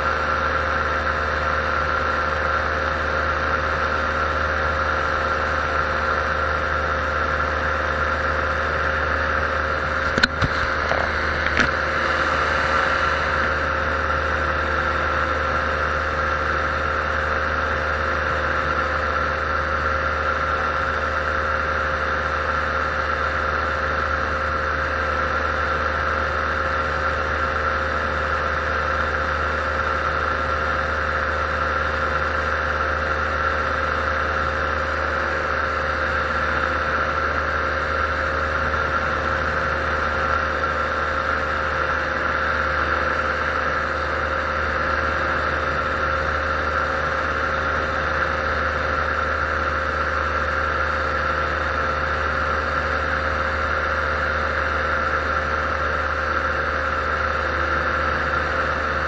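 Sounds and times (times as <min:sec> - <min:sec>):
paramotor engine droning: 0:00.0 - 0:59.0.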